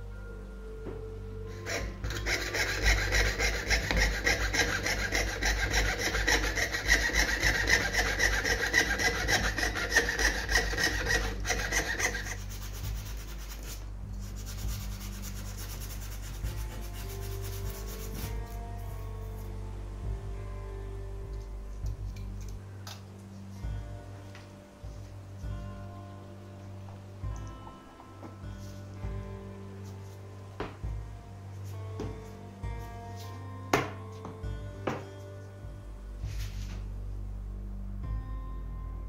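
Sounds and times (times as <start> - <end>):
saw rasping through metal sheet: 1.5 - 18.6
faint rubbing: 1.5 - 19.6, 36.2 - 36.9.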